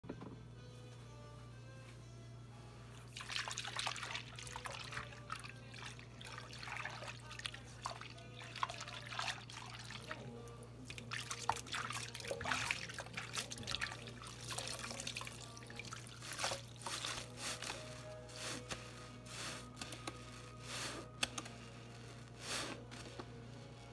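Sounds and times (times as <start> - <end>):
wet sponge squishing: 3.1 - 10.3, 10.9 - 23.2
trickling water: 3.1 - 17.3.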